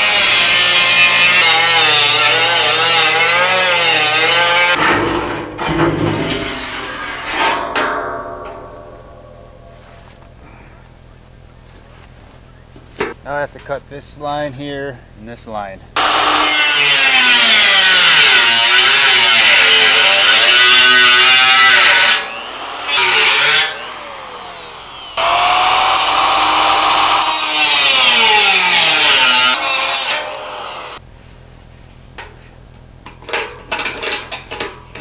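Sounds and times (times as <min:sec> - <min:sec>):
angle grinder cutting steel: 0:00.0 - 0:05.1, 0:16.0 - 0:31.0.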